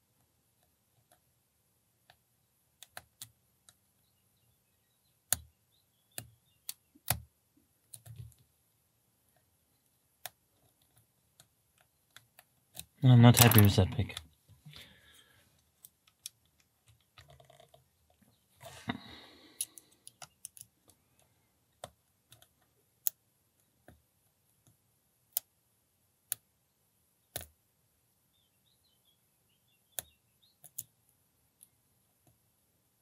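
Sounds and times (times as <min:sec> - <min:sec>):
lock picks clicking: 0:12.2 - 0:13.8, 0:19.6 - 0:20.8.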